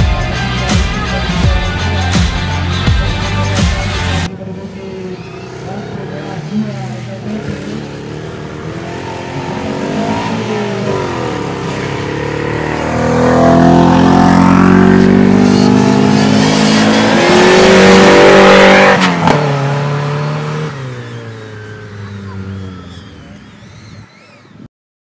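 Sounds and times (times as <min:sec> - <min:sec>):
buggy engine revving: 0:00.0 - 0:24.7.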